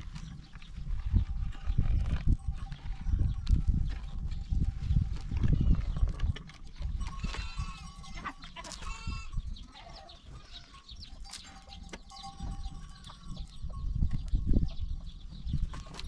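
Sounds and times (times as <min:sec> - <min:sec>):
livestock bleating: 0:07.1 - 0:10.9.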